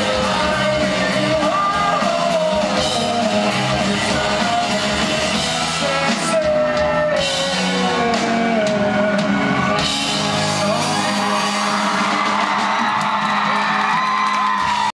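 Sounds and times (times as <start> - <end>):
person singing: 0.0 - 13.9
rock band playing live: 0.0 - 14.9
crowd shouts and whoops: 9.1 - 14.9.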